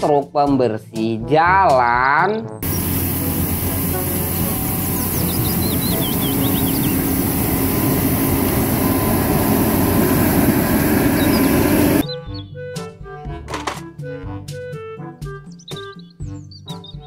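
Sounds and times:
brushes scrubbing road: 2.6s - 12.0s
street sweeper engine drone: 2.6s - 12.0s.

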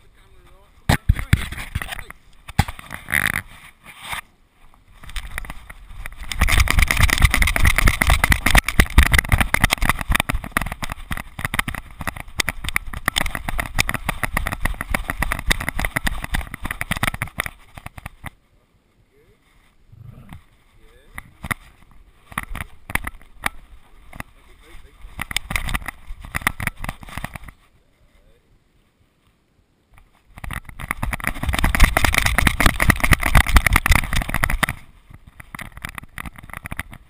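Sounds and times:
camera knocking and rattling: 0.9s - 3.6s, 5.0s - 18.4s, 21.1s - 27.6s, 29.9s - 37.0s.

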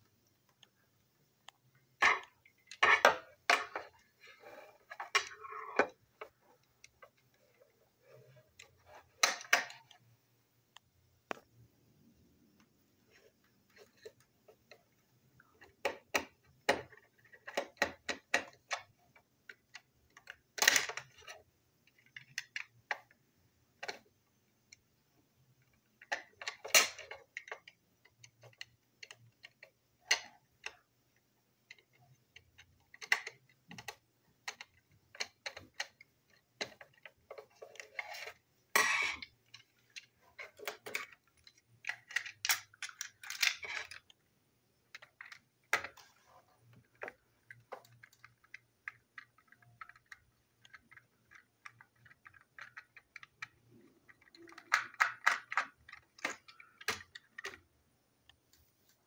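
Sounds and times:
plastic clicks taps and scrapes: 12.6s - 23.2s, 25.6s - 44.2s, 44.8s - 59.0s.

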